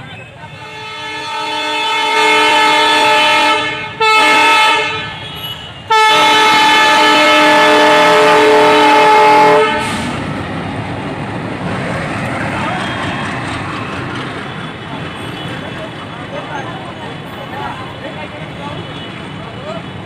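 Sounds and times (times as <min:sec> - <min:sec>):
locomotive air horn blasts: 0:00.5 - 0:10.1.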